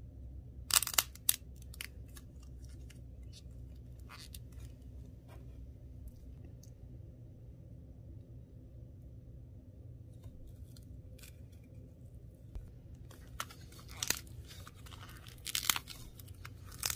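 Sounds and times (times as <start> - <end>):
clay ball cracking and crunching: 0.6 - 5.2, 12.5 - 16.9.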